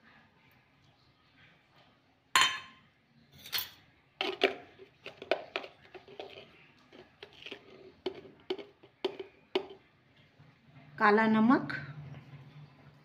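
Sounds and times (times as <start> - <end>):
spoon clinking steel containers: 2.4 - 9.8.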